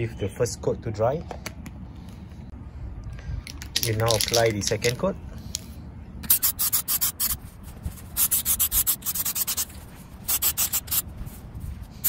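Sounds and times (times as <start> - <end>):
spray paint can hissing: 6.2 - 7.4, 8.0 - 11.1.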